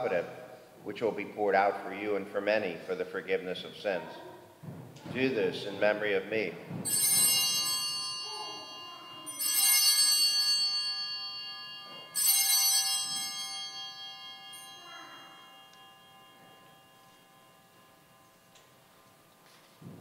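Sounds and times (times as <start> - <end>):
altar bells ringing: 6.7 - 19.9.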